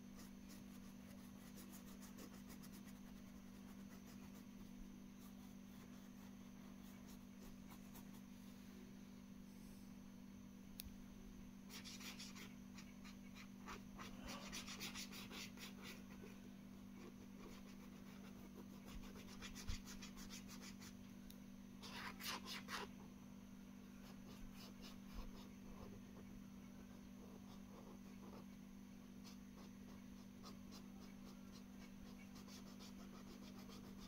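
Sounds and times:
marker scratching on paper: 0.2s - 4.4s, 11.7s - 16.1s, 17.0s - 21.0s, 21.8s - 22.9s, 24.0s - 26.0s, 27.2s - 28.5s, 29.2s - 34.0s.

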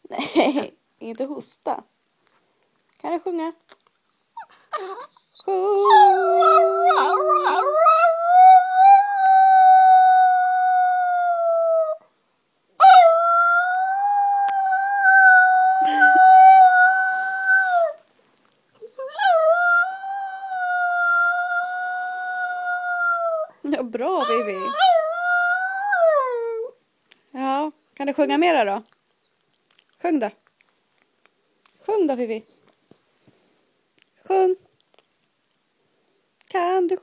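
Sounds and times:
small dog howling: 4.8s - 12.0s, 24.2s - 26.8s.

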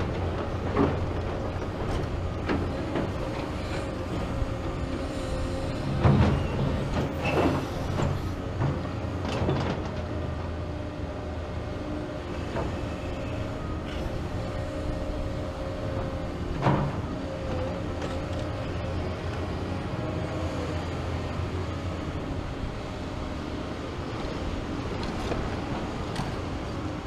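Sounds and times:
excavator engines whining: 0.0s - 27.0s.

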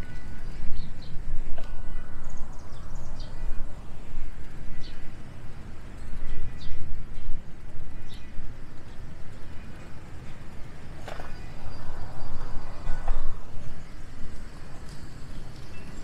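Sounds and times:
bird chirping: 0.0s - 4.1s
wind buffeting microphone: 0.0s - 16.0s.

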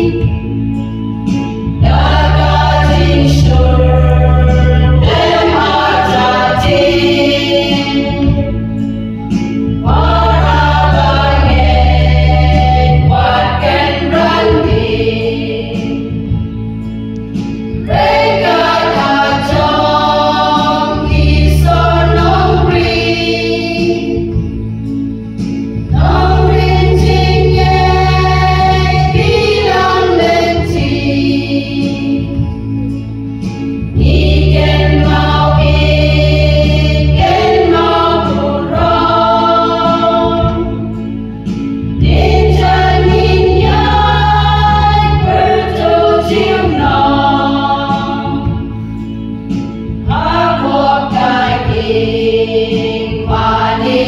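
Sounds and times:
women's choir singing a hymn: 0.0s - 0.8s, 1.5s - 16.5s, 17.7s - 24.6s, 25.7s - 32.7s, 33.8s - 54.0s
low sustained notes: 1.1s - 15.0s.

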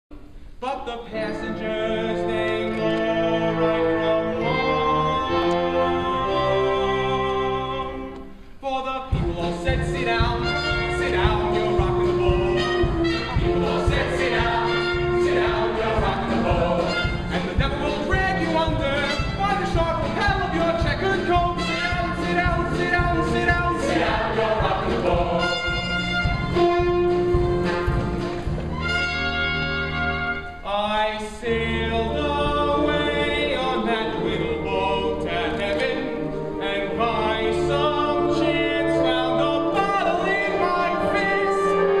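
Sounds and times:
man singing: 0.6s - 25.8s, 30.6s - 42.0s
instrumental accompaniment: 1.1s - 30.7s
chorus singing: 9.1s - 28.2s, 30.6s - 42.0s.

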